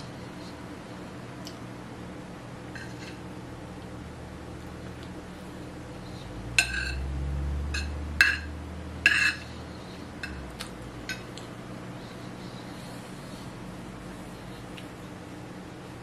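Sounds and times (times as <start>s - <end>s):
cutlery clinking on plate: 2.7s - 3.2s, 6.6s - 7.0s, 9.1s - 9.4s.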